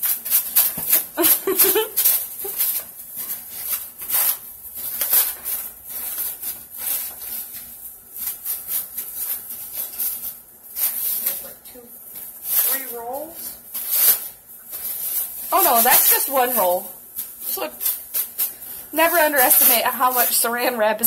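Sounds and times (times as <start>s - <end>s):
plastic cling wrap crinkling: 0.0s - 21.0s.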